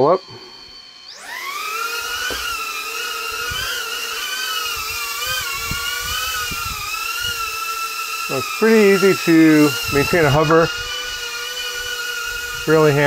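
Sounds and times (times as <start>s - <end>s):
quadcopter high-pitched whine: 0.0s - 13.0s.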